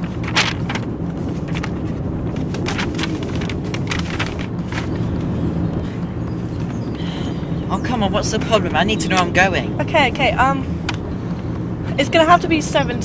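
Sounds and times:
paper map rustling and crinkling: 0.0 - 6.9
low rumble of car driving: 0.0 - 13.0.

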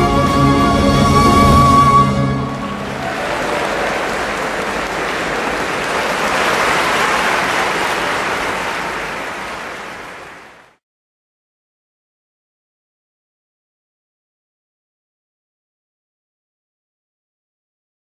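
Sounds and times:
audience applauding: 2.3 - 10.8.

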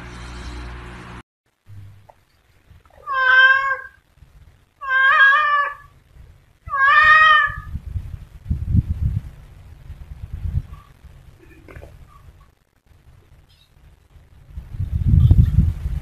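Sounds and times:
low rumbling noise: 0.0 - 16.0
cat meowing: 2.9 - 4.0, 4.8 - 5.9, 6.7 - 7.7.

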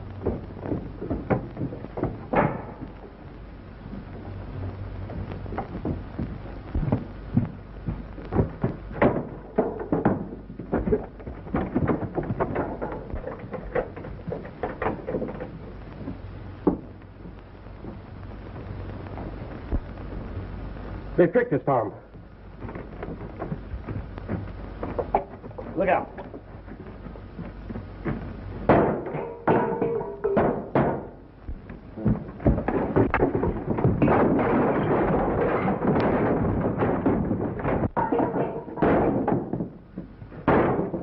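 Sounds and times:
knocks bumps and scrapes: 0.0 - 21.1, 21.7 - 41.0
film soundtrack hum and hiss: 0.0 - 41.0.

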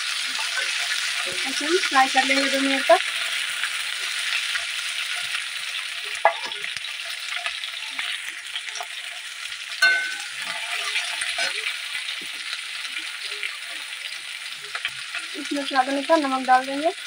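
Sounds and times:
vegetables sizzling in hot oil: 0.0 - 17.0
metal spatula scraping and clinking: 9.8 - 11.7.

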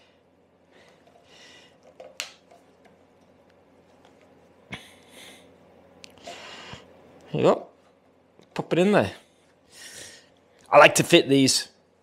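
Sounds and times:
short breaths: 6.2 - 7.0, 9.7 - 10.4.

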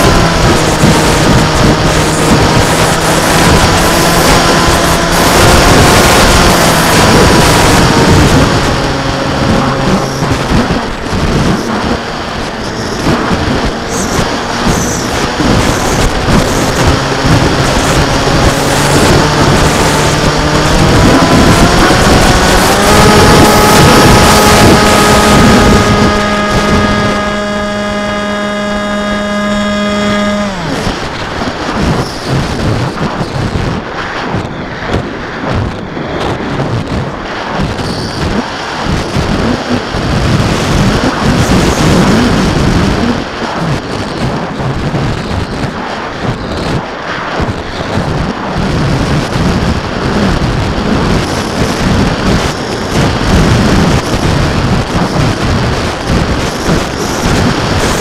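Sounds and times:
model aircraft motor hum: 0.0 - 33.5
wind buffeting microphone: 0.0 - 58.0.

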